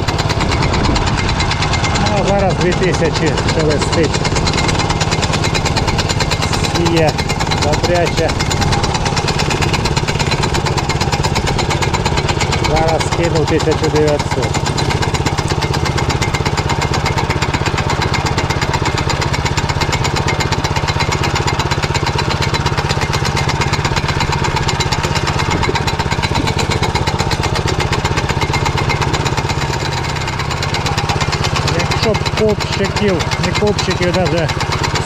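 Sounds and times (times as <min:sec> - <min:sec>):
tractor engine running: 0:00.0 - 0:35.0.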